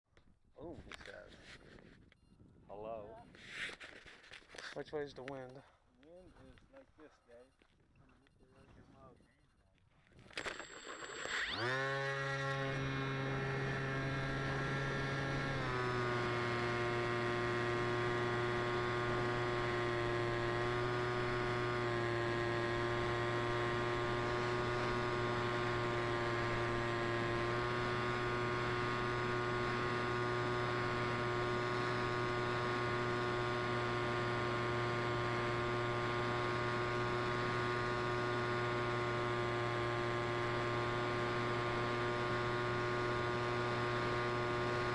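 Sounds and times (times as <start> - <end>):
electric motor propeller whine: 10.3 - 44.9.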